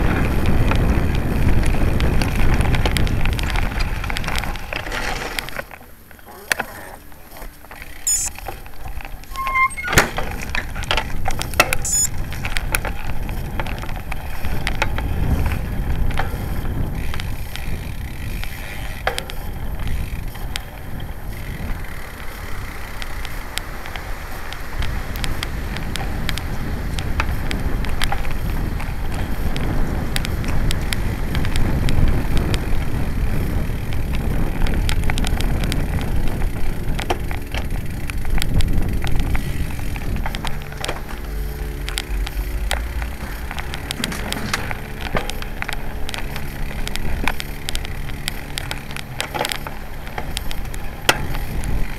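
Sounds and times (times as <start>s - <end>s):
wind buffeting microphone: 0.0s - 6.1s, 8.5s - 51.9s
tyre rumble over gravel: 0.0s - 8.0s, 10.3s - 51.9s
bike rattling clicks and knocks: 0.0s - 51.9s.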